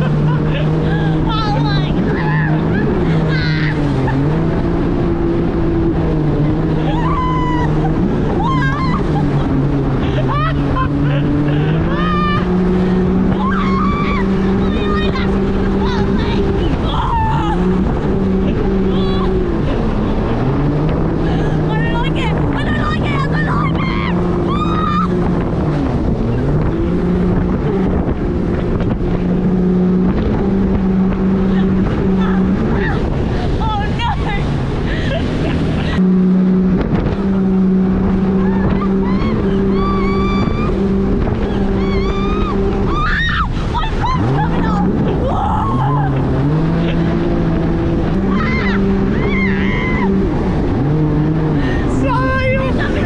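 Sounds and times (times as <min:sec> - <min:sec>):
riders screaming and yelling: 0:00.0 - 0:04.8, 0:06.3 - 0:20.4, 0:21.2 - 0:26.9, 0:31.1 - 0:36.0, 0:38.0 - 0:53.0
jet ski engine running: 0:00.0 - 0:53.0
wind buffeting microphone: 0:00.0 - 0:53.0.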